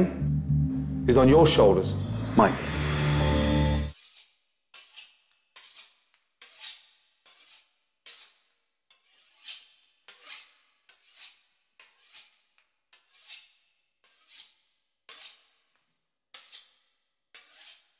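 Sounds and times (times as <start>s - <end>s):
knife sawing through crisp pastry: 3.9s - 15.7s, 16.4s - 17.9s.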